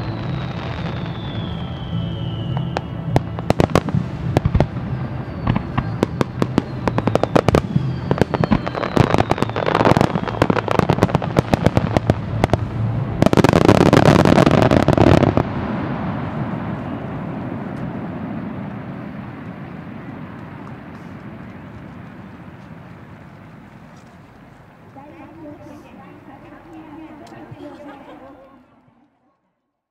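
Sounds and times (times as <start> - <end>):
fireworks falling whistles: 0.0 - 12.0
fireworks bangs: 0.0 - 28.3.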